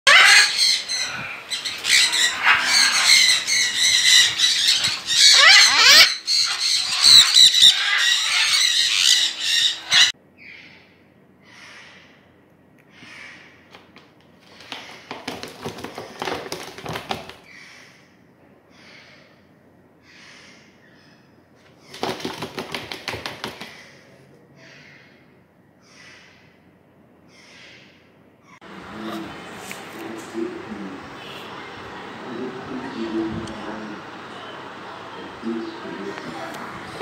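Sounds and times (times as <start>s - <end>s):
macaws squawking: 0.1s - 10.8s.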